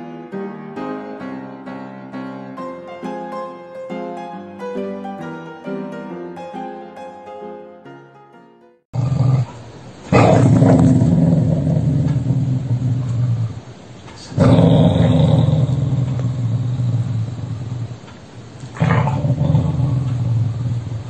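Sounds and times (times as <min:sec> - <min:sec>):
dog growling: 0:09.0 - 0:18.1, 0:18.7 - 0:21.0.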